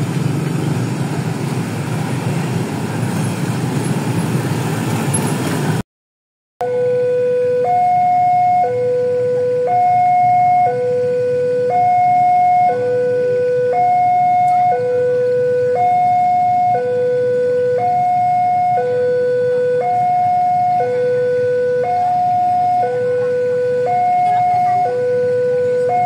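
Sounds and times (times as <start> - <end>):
level crossing two-tone alarm: 6.6 - 26.0.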